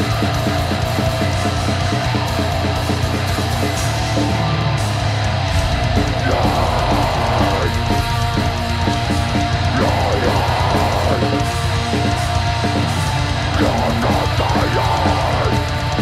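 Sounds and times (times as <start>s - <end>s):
drum kit: 0.0s - 16.0s
electric guitar: 0.0s - 16.0s
person singing into a microphone: 6.1s - 8.1s, 9.7s - 12.9s, 13.5s - 16.0s.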